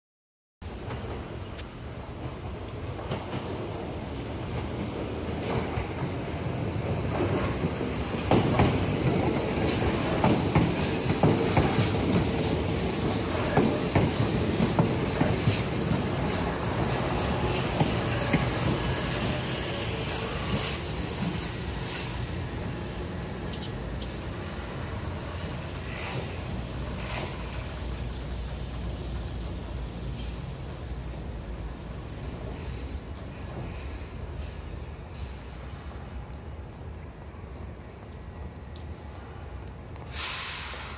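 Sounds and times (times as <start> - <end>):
electric train passing: 0.7 - 40.9
wheels clacking over rail joints: 0.8 - 35.3
short hisses: 40.1 - 40.9.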